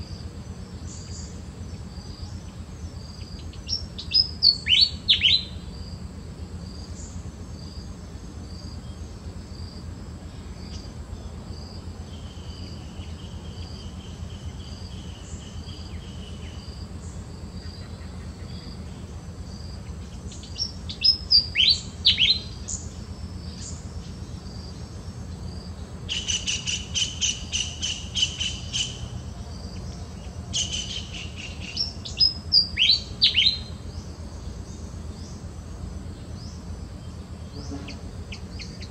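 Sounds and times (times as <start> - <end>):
fast rattling bird call: 19.9 - 24.5, 26.0 - 33.9.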